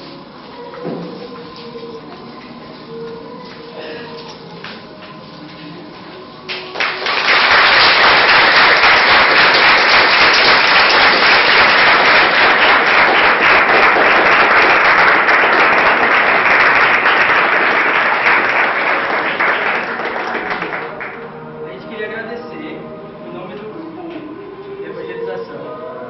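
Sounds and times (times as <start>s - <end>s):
crowd applauding: 6.5s - 21.2s.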